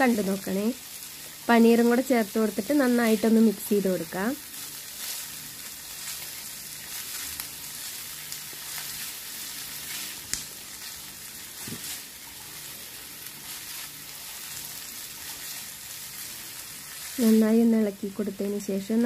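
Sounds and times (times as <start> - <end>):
food sizzling in a skillet: 0.0 - 19.0
wooden spatula scraping: 4.9 - 17.7.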